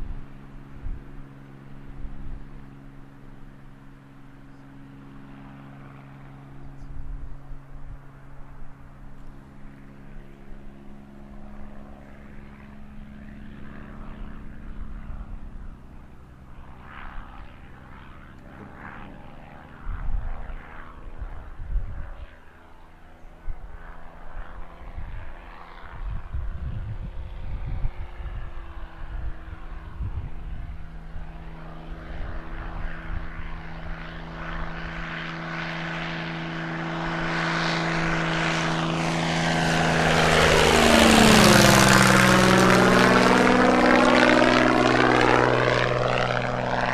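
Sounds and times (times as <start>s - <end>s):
wind rumble on microphone: 0.0s - 2.6s, 18.5s - 22.4s, 23.4s - 35.2s
propeller plane engine droning: 0.0s - 46.9s.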